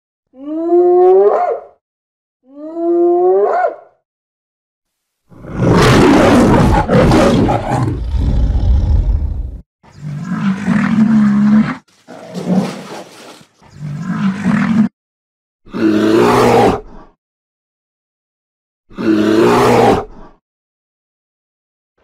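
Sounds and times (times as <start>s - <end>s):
lion roaring: 5.3s - 14.9s, 18.9s - 20.3s.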